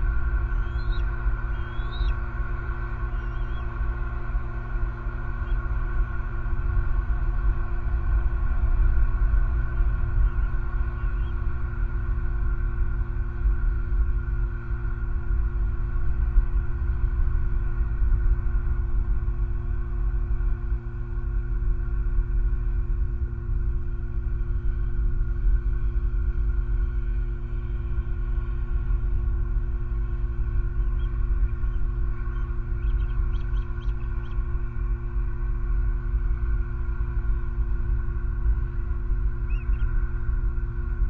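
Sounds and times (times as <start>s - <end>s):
low rumble: 0.0s - 41.0s
steady tonal hum: 0.0s - 41.0s.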